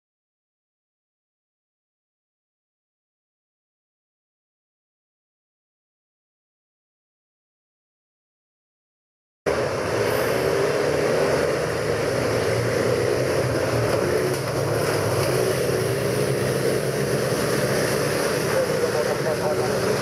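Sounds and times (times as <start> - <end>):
racing car engines running hard: 9.5 - 20.0.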